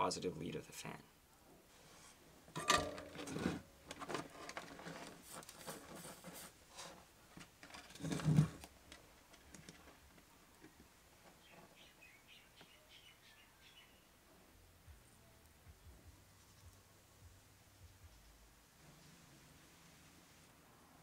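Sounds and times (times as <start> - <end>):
hands clicking and rustling wires: 2.6 - 11.7.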